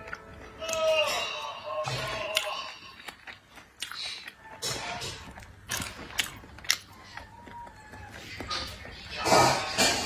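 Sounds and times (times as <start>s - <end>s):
chewing with wet mouth smacks: 2.0s - 10.0s.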